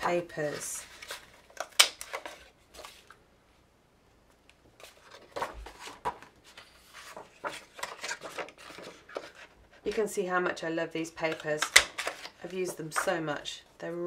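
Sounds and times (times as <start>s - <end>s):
paper rustling and sliding: 0.0s - 3.2s, 4.8s - 10.1s, 11.2s - 13.2s.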